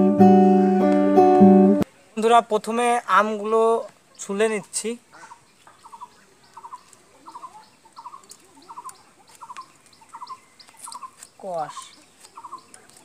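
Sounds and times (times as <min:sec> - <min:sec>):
faint chirping calls: 0:05.0 - 0:13.0.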